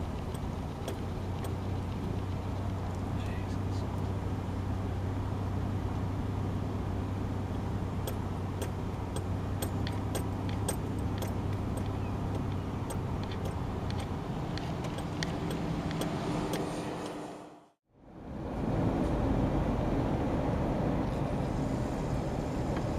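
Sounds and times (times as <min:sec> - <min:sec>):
car engine and road hum: 0:00.0 - 0:22.9
light clicks and rattles: 0:08.0 - 0:16.7.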